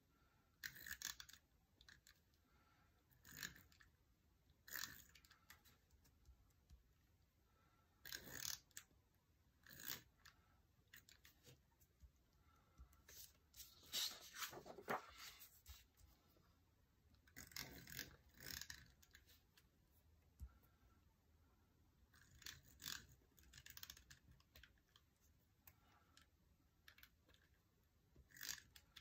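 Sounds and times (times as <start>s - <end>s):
paper pages rustling on a desk: 13.1s - 16.1s.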